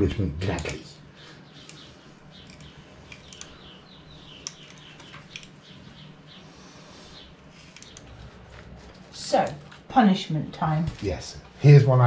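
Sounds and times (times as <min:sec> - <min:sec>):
bird chirps: 0:00.8 - 0:08.2
light clicks: 0:07.7 - 0:08.2.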